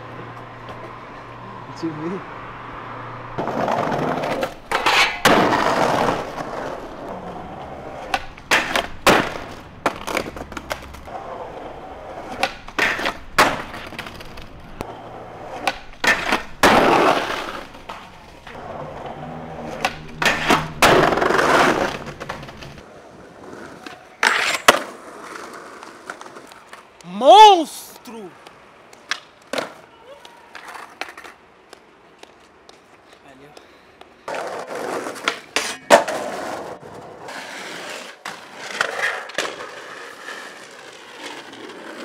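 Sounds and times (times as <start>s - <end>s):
skateboard wheels rolling on pavement: 0.0s - 42.0s
skateboard slamming on ground: 3.4s - 7.4s, 8.0s - 11.4s, 12.0s - 14.5s, 15.4s - 18.9s, 19.6s - 22.8s, 34.3s - 40.0s
skateboard tail pops: 8.0s - 11.0s, 12.3s - 14.5s, 15.5s - 18.1s, 19.7s - 22.8s, 28.9s - 32.9s.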